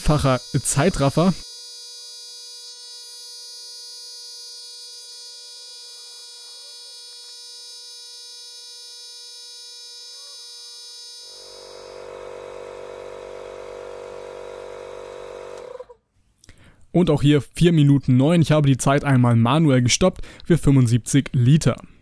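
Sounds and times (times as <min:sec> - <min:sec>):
compressor electric buzz: 0:00.0 - 0:16.0.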